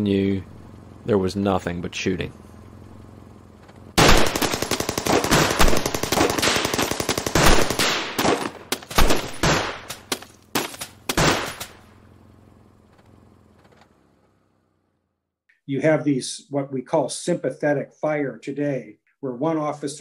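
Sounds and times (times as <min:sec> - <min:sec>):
low steady hum: 0:00.0 - 0:20.0
gunfire: 0:04.0 - 0:11.8.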